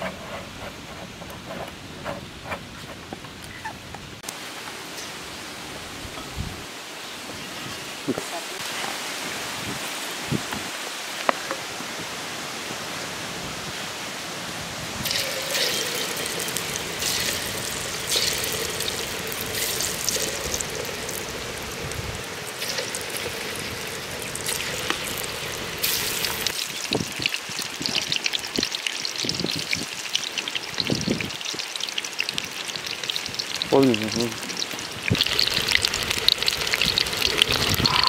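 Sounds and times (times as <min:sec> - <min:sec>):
food frying in hot oil: 0:15.0 - 0:38.0.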